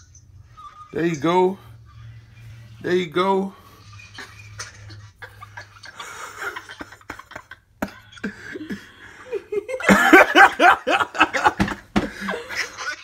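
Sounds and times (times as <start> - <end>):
people laughing: 3.9 - 13.0.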